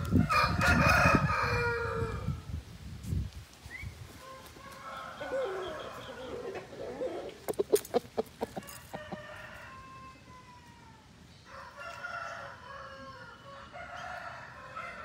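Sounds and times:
faint rooster crows: 0.1 - 2.5, 4.2 - 7.3, 8.6 - 15.0
rooster clucking: 5.3 - 9.6.

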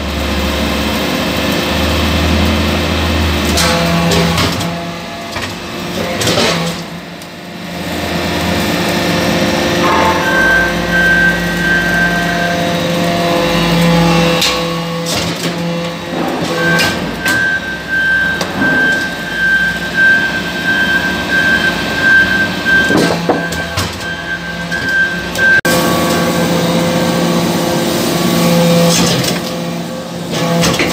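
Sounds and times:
high whine: 9.5 - 13.3.

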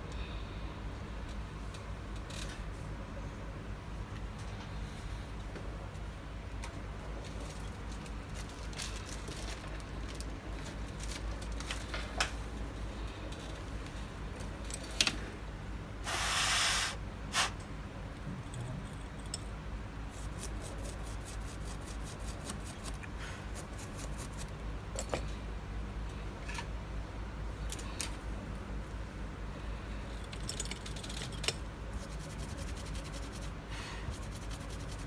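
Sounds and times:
steady low hum: 0.0 - 35.0
burst of hiss: 16.0 - 17.6.

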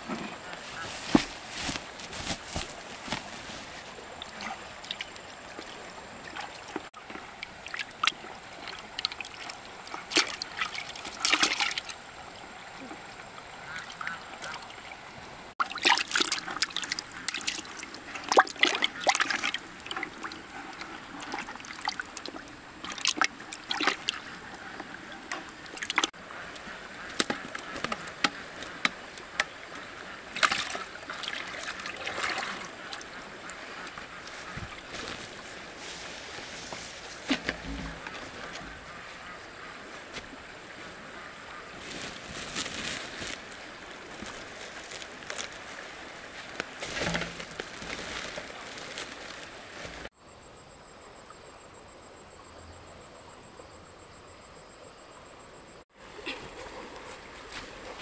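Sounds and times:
water splashing and sloshing: 0.0 - 50.2, 55.9 - 58.0
water trickling: 2.8 - 41.2.

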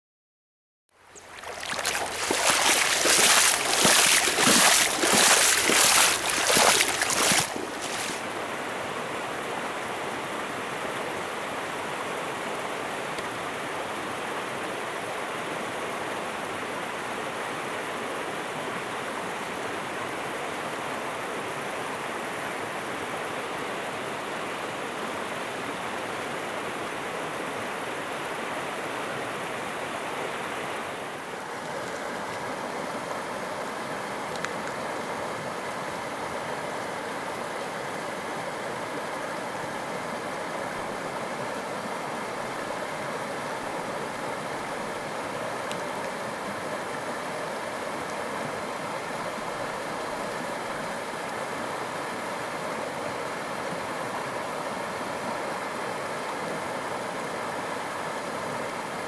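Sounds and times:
river water rushing: 1.1 - 9.5.

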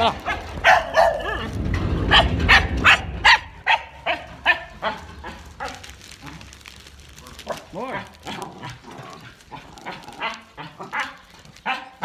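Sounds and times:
microphone handling rumble: 0.0 - 3.7
dog barking: 0.2 - 1.5, 2.1 - 5.9, 9.9 - 12.0.

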